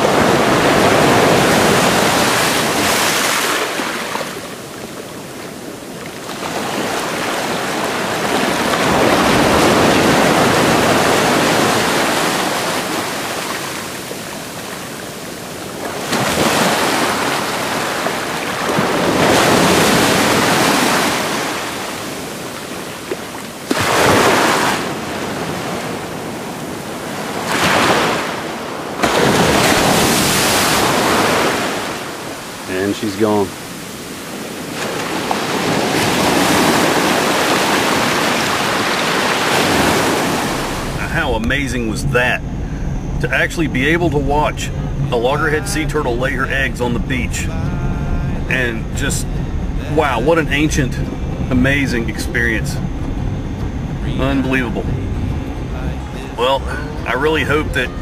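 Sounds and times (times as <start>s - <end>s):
ocean surf breaking: 0.0s - 58.0s.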